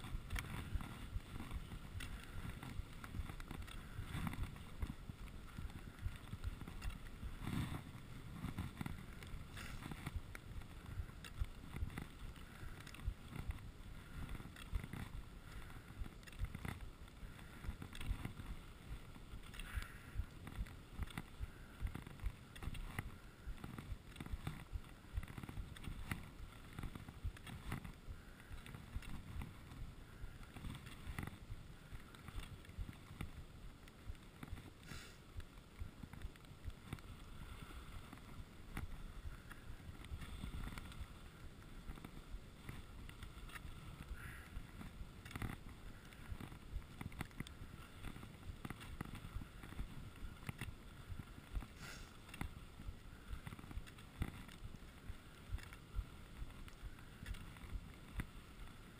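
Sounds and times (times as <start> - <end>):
ski edges scraping: 0.0 - 58.9
wind rumble on microphone: 0.0 - 58.9
skis hissing over snow: 0.1 - 15.8, 34.6 - 35.4, 45.6 - 58.9.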